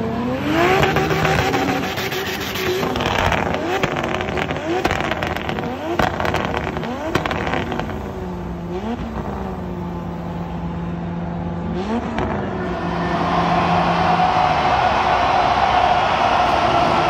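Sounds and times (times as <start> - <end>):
high-revving racing engine: 0.0 - 15.7
sharp engine pops: 2.9 - 8.0.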